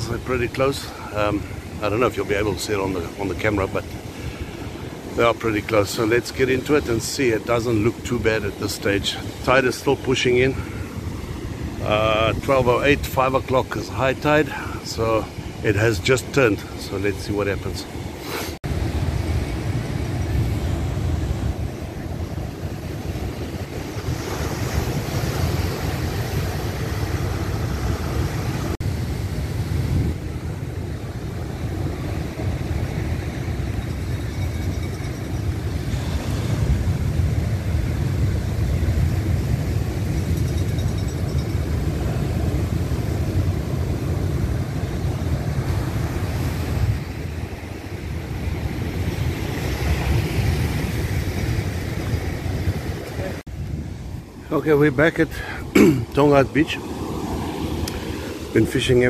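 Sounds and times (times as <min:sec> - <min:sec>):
wind buffeting microphone: 0:18.0 - 0:59.0
surf breaking over rocks: 0:35.4 - 0:59.0.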